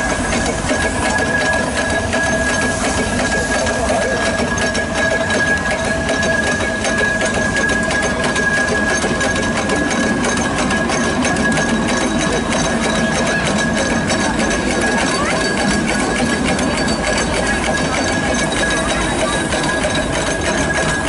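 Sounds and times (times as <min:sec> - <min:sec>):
steady high-pitched tone: 0:00.0 - 0:21.0
steam traction engine running: 0:00.0 - 0:21.0.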